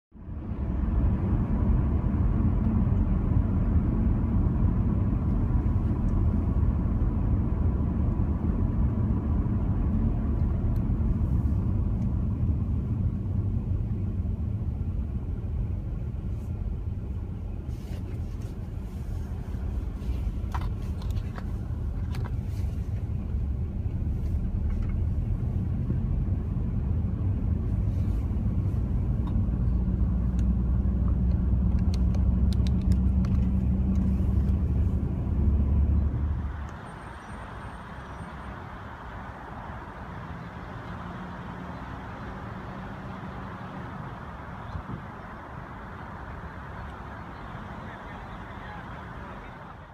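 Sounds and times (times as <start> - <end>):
car tyres and engine rumble: 0.1 - 49.9
hiss from wet asphalt: 36.4 - 49.2.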